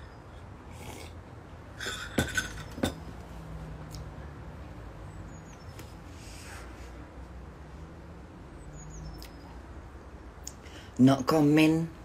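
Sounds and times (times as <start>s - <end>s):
soft breathing: 6.1s - 7.2s.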